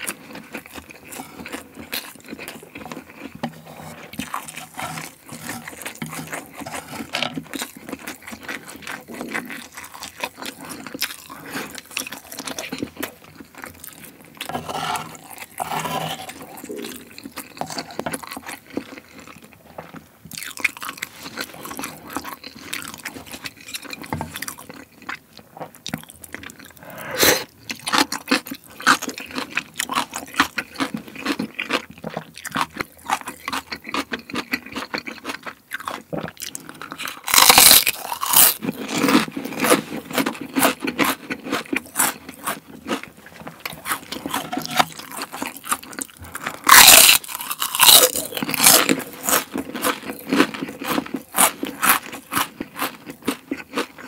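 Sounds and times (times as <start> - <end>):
chewing and crunching food: 0.0 - 54.0
wet mouth sounds: 25.8 - 27.8.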